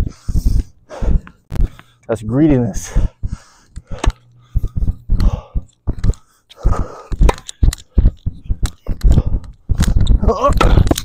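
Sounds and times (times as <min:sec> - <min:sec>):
rackets striking tennis balls: 0:07.1 - 0:11.0.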